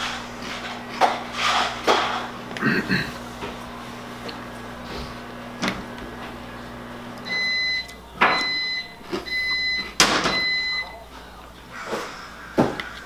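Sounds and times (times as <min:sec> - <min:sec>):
low electrical hum: 0:00.0 - 0:13.0
electronic beeper: 0:07.2 - 0:11.0.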